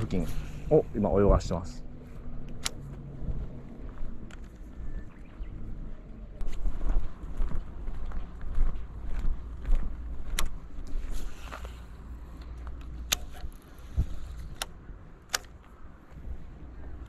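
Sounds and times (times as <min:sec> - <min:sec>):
wind buffeting microphone: 0:00.9 - 0:11.1, 0:13.3 - 0:15.1
sharp clicks of rod and reel: 0:12.4 - 0:15.7.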